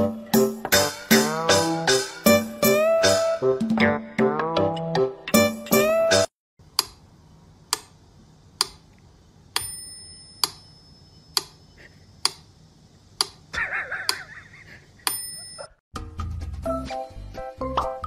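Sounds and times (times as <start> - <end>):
metronome bell ringing: 9.6 - 11.3, 15.1 - 15.8.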